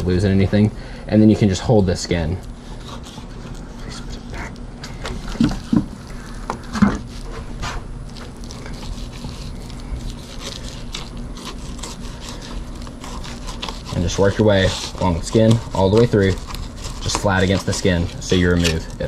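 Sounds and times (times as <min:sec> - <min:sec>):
low steady hum: 0:00.0 - 0:19.0
knife scraping fish skin: 0:02.5 - 0:19.0.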